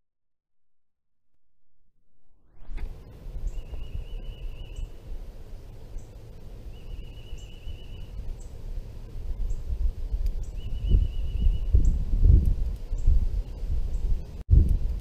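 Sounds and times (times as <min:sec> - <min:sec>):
wind rumble on microphone: 0:02.5 - 0:15.0
bird trilling: 0:06.7 - 0:08.5.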